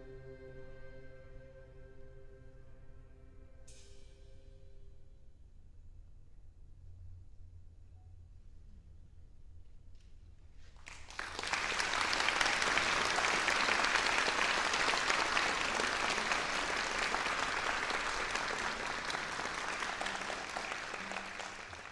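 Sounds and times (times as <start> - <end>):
audience applauding: 10.8 - 21.9.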